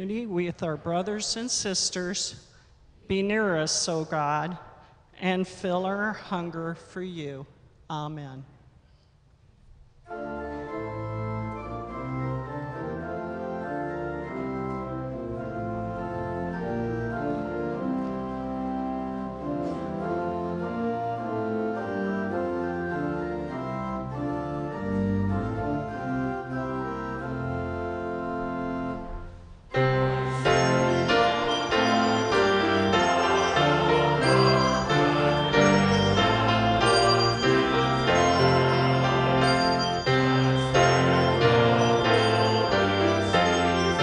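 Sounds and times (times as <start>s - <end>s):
church organ playing hymn: 10.0s - 44.0s.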